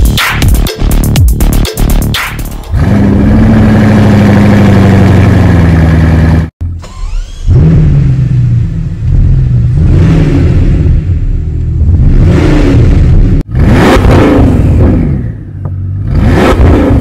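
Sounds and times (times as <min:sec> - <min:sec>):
car engine running and revving: 0:00.0 - 0:17.0.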